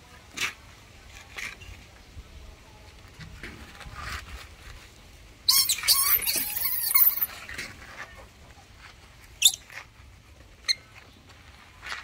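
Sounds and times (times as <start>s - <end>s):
baby monkey screeching: 5.5s - 7.4s, 9.4s - 9.7s
short sharp squeak: 5.5s - 7.4s, 9.4s - 9.8s.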